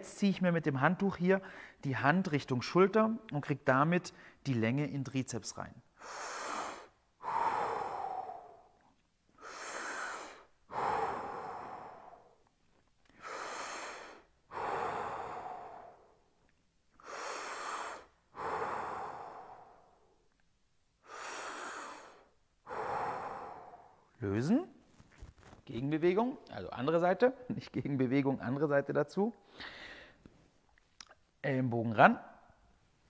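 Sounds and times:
man breathing deeply: 1.4s - 1.8s, 5.9s - 16.4s, 17.0s - 20.2s, 21.0s - 24.2s, 29.4s - 30.3s.

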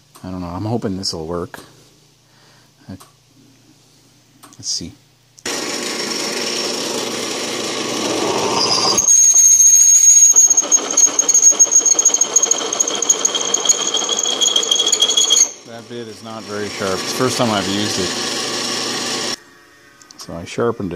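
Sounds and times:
drill press running: 5.4s - 19.4s
drill bit squealing in steel: 6.4s - 15.7s.

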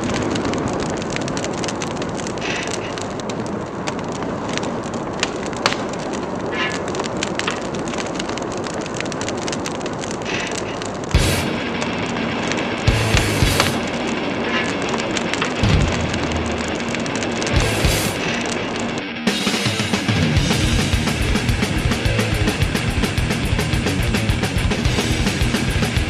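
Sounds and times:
fire crackling: 0.0s - 26.0s
music: 11.2s - 26.0s.

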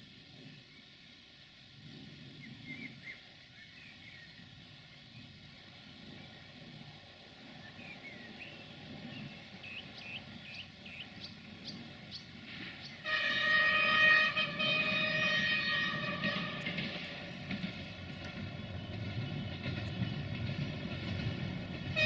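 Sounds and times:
train engine rumble: 0.0s - 22.0s
birds chirping: 7.4s - 21.5s
train horn blast: 12.9s - 17.3s.

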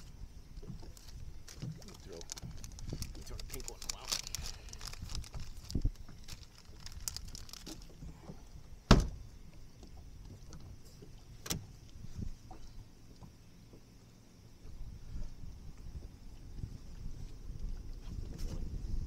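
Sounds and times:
knocks and thumps in a boat: 7.3s - 14.0s, 14.6s - 19.0s.

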